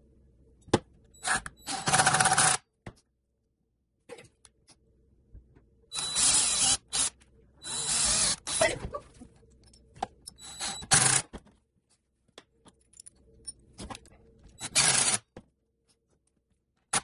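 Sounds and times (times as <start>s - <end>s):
cordless drill drilling into wood: 6.0s - 7.1s, 7.7s - 8.6s.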